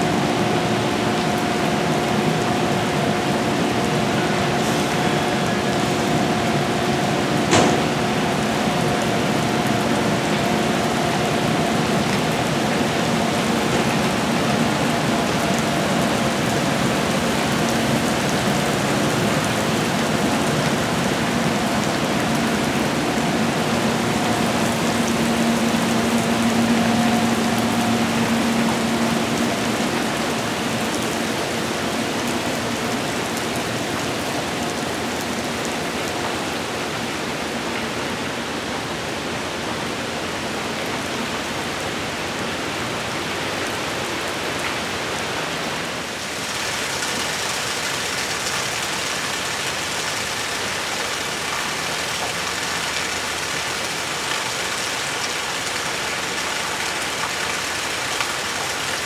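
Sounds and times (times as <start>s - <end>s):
passing train tones: 0.0s - 34.2s
heavy rain falling: 0.0s - 59.0s.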